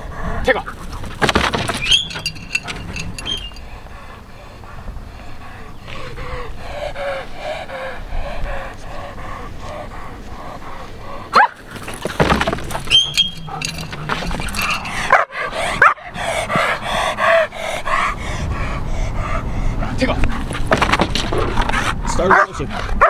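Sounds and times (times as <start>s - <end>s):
dog whining and yelping: 1.7s - 4.2s
dog barking: 11.3s - 11.6s, 15.1s - 16.0s, 22.3s - 22.6s.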